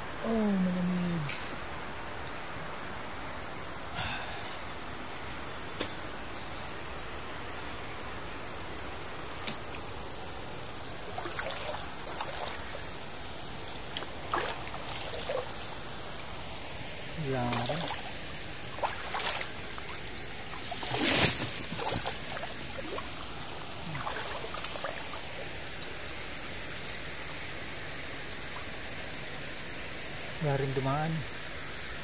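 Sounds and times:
high insect drone: 0.0s - 32.0s
water swishing and trickling: 8.2s - 32.0s
water splashes: 10.9s - 29.2s.

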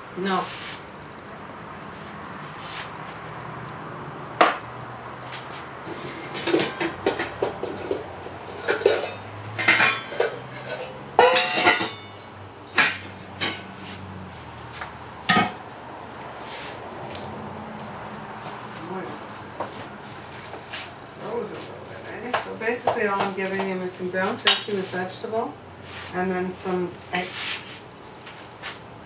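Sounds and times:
dishes and metal utensil clattering: 5.9s - 13.7s, 15.3s - 15.6s.

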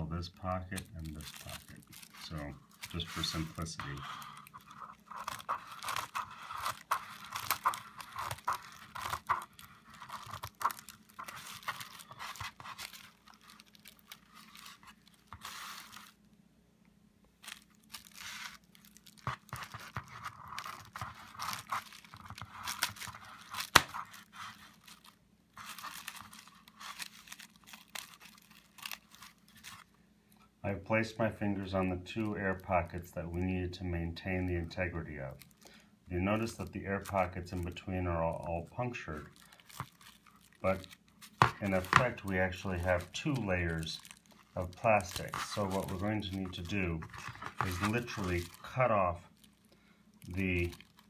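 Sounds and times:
bubble wrap crinkling: 0.0s - 16.4s, 17.2s - 51.0s
bubble wrap pop: 22.7s - 24.1s.

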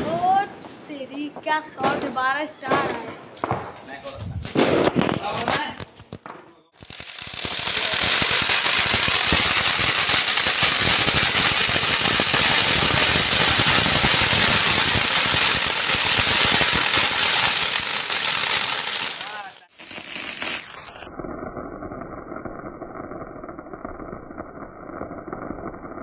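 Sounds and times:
firework fountain hissing and crackling: 6.7s - 26.0s.

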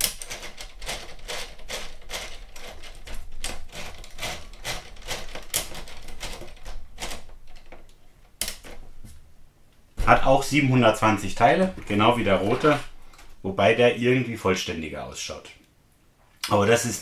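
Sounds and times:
plastic gears clicking and clattering: 0.0s - 8.8s.

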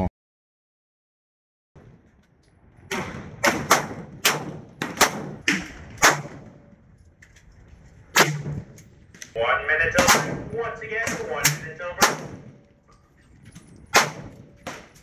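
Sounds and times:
sharp cracks: 2.9s - 6.4s, 11.0s - 12.5s, 13.9s - 15.0s.

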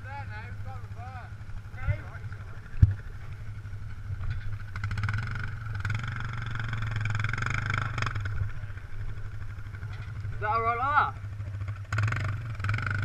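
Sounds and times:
dirt bike engine under load: 1.7s - 10.7s.

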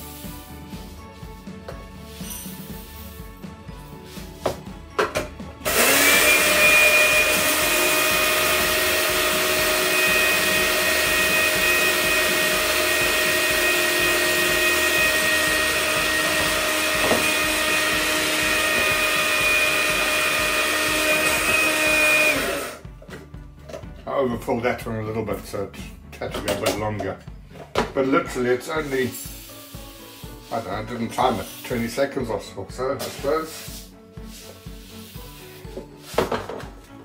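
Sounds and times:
coffee grinders whining: 5.6s - 22.8s.

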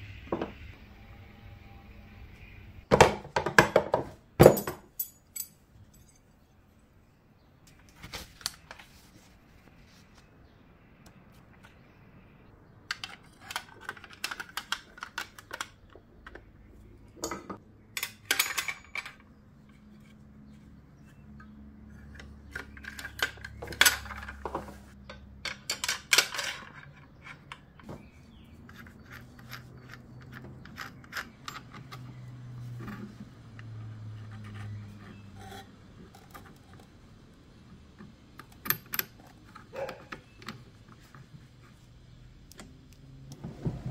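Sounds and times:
metal and plastic parts clattering: 12.9s - 16.5s, 17.1s - 19.4s, 22.0s - 33.8s.

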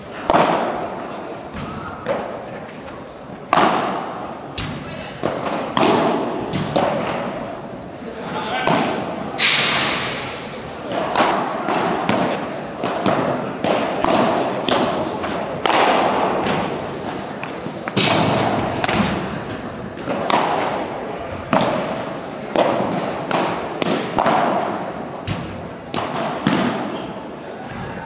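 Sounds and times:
ball striking rackets: 3.5s - 7.4s, 8.7s - 15.0s, 15.6s - 16.7s, 17.4s - 19.4s, 21.4s - 27.0s.

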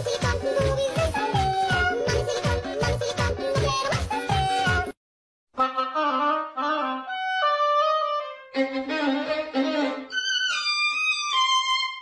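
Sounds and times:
violin melody: 5.6s - 12.0s.

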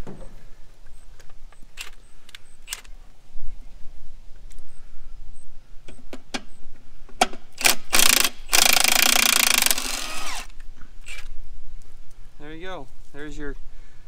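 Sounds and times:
impact wrench hammering rattle: 7.6s - 10.5s.

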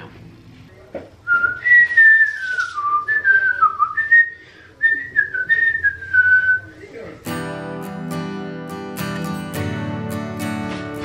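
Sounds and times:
person whistling a tune: 1.3s - 6.7s.

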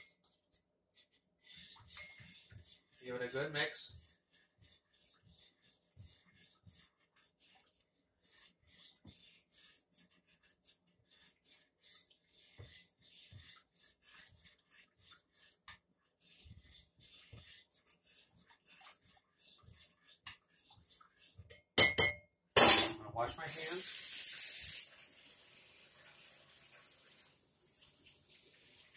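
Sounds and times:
spoon scraping a bowl: 1.5s - 4.1s, 16.4s - 23.0s
utensil clacking on bowl: 21.4s - 23.0s.

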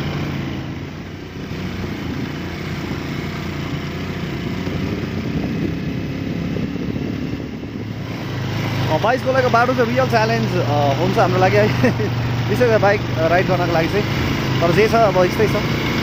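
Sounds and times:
motorcycle engine running: 0.0s - 16.0s
wind rushing over microphone: 4.2s - 11.1s.

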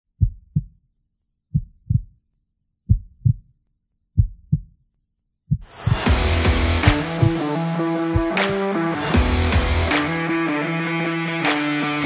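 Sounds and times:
heartbeat thumps: 0.2s - 0.8s, 1.5s - 2.2s, 2.9s - 3.5s, 4.2s - 4.8s, 5.5s - 7.4s, 8.1s - 8.4s.

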